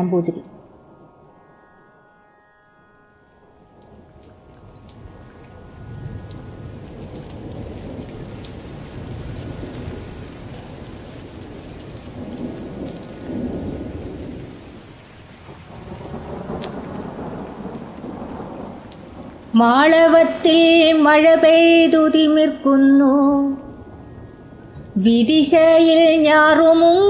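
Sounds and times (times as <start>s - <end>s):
heavy rain: 3.3s - 27.0s
rolling thunder: 5.0s - 22.2s.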